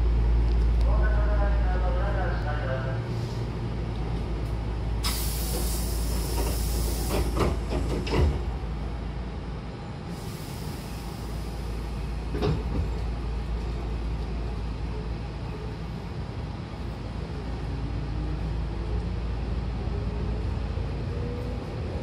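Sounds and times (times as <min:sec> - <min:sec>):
train low hum: 0:00.0 - 0:22.0
train door hiss: 0:05.0 - 0:08.4, 0:10.1 - 0:12.8.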